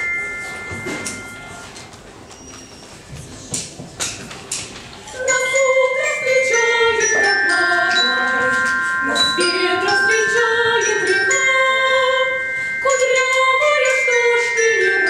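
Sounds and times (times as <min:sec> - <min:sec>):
mallet percussion melody: 0:00.0 - 0:01.8, 0:05.2 - 0:15.0.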